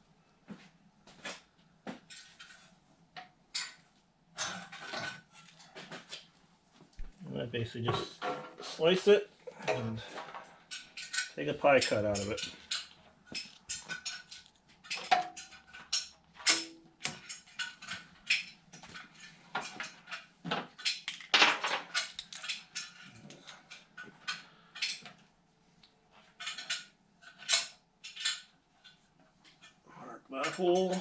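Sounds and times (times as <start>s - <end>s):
metal tools clinking: 9.6s - 20.2s.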